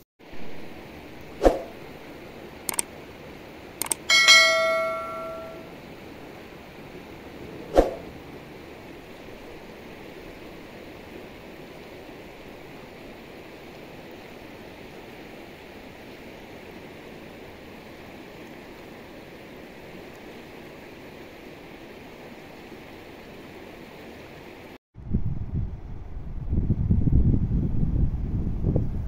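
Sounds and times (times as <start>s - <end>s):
sharp click with ring: 3.8s - 5.6s.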